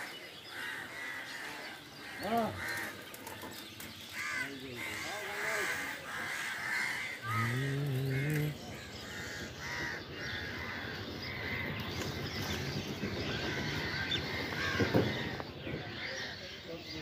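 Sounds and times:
crows cawing: 0.0s - 3.4s, 4.1s - 12.2s, 13.3s - 16.2s
street noise: 0.0s - 17.0s
low drawn-out voice: 7.2s - 8.9s.

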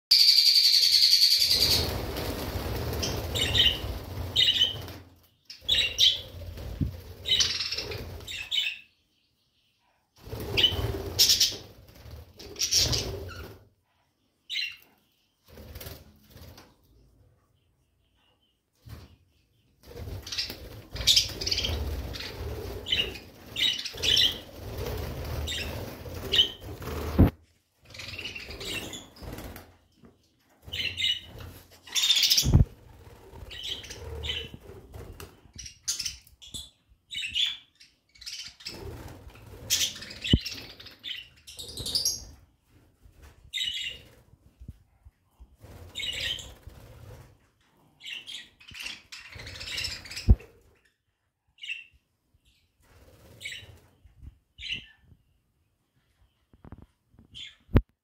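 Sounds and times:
budgerigars chirping and chattering: 3.0s - 6.3s, 7.2s - 8.8s, 20.2s - 24.5s, 33.5s - 34.6s, 46.0s - 46.6s, 48.0s - 50.4s.

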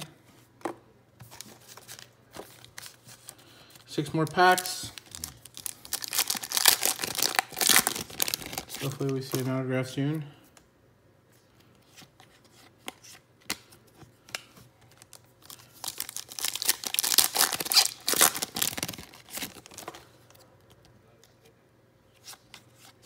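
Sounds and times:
foil wrapper crinkling and tearing: 4.3s - 9.4s, 15.0s - 19.9s.

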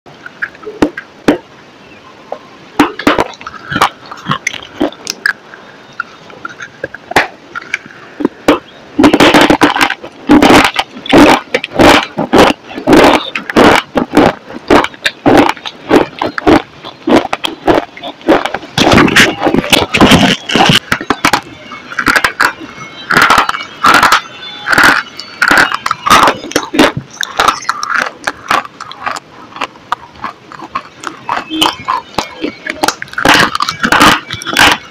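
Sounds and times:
loud crackling chews: 2.8s - 34.9s
hard bar crunching when bitten: 8.5s - 34.8s.

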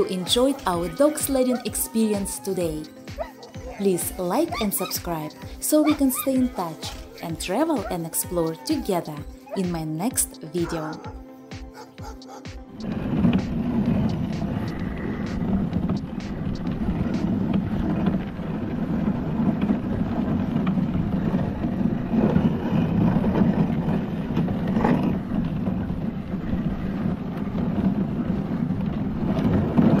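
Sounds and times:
sled runners rumbling on snow: 0.0s - 30.0s
wind on microphone: 12.8s - 30.0s.

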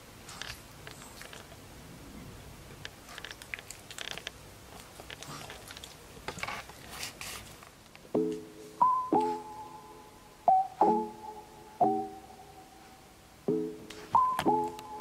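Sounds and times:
puppy licking and smacking: 0.3s - 1.6s, 3.0s - 6.1s
piano note: 8.2s - 12.9s, 13.5s - 15.0s.

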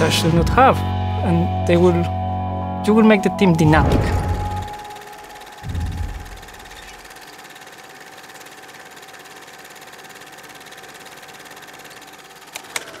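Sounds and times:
rapid mechanical clattering: 4.1s - 13.0s.

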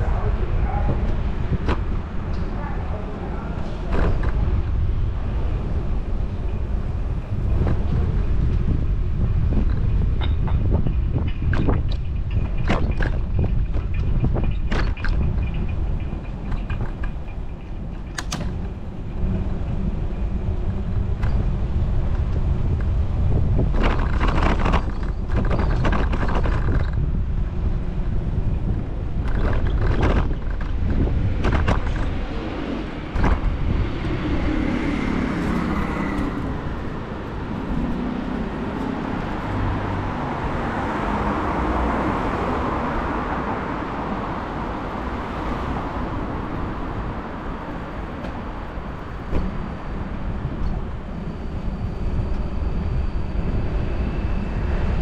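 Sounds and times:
road traffic: 0.0s - 55.0s
wind on microphone: 0.0s - 55.0s
vehicle passing: 32.0s - 51.0s.

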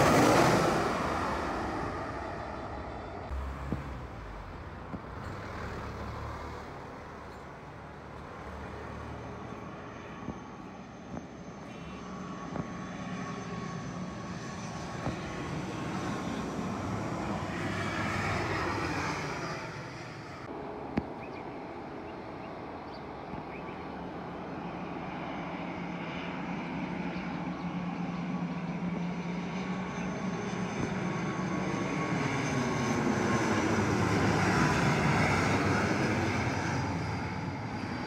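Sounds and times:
turboprop droning: 0.0s - 25.2s
passing jet: 0.0s - 38.0s.

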